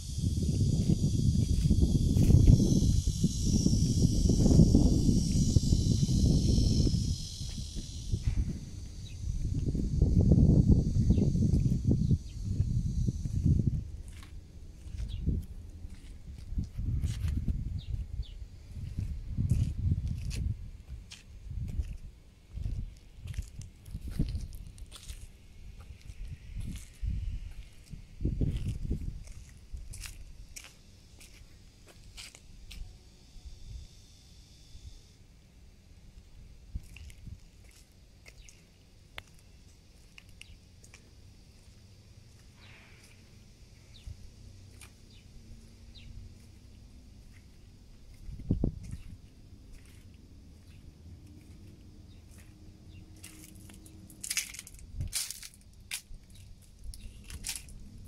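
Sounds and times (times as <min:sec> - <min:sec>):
footsteps crunching on dirt: 0:00.0 - 0:10.0, 0:11.3 - 0:18.2, 0:18.8 - 0:32.8, 0:36.8 - 0:43.2, 0:43.9 - 0:58.0
wind buffeting microphone: 0:00.0 - 0:30.6, 0:48.0 - 0:58.0.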